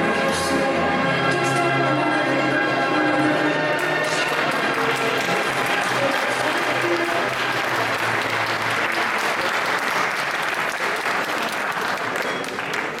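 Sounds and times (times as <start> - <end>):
music: 0.0 - 13.0
audience applauding: 3.8 - 13.0.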